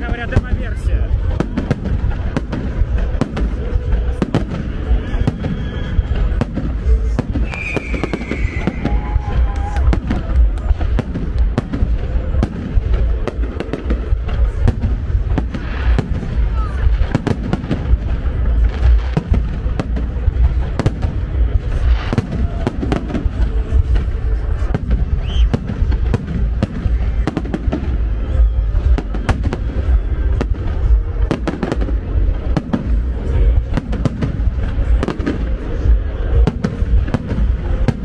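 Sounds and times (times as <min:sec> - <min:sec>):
fireworks shells bursting: 0:01.3 - 0:14.6.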